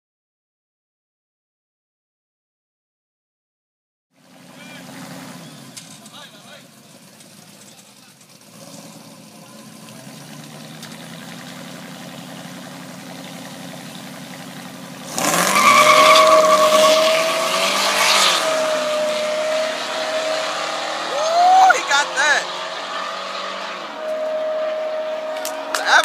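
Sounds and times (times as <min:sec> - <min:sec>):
truck engines accelerating: 0:04.2 - 0:26.0.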